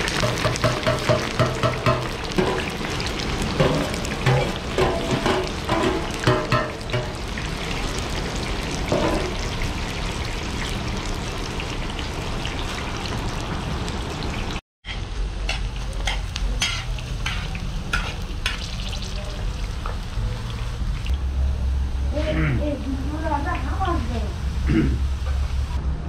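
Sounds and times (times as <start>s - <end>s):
rice sizzling in hot oil: 0.0s - 22.2s.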